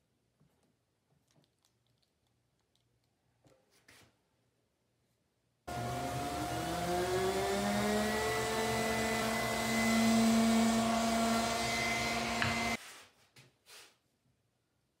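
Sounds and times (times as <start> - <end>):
orbital sander whining: 5.7 - 12.8.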